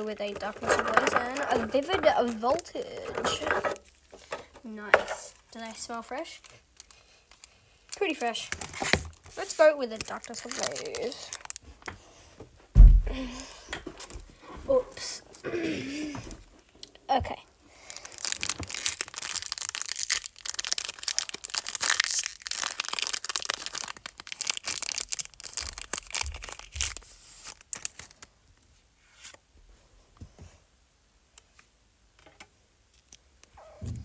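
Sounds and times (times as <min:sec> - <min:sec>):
foil pack crinkling and tearing: 0:00.0 - 0:03.8, 0:06.2 - 0:11.9, 0:17.8 - 0:28.3.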